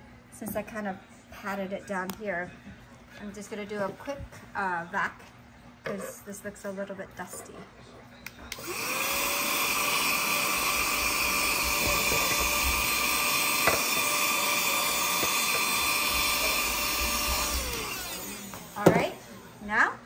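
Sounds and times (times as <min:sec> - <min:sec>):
handheld vacuum cleaner whining: 0:08.5 - 0:19.0.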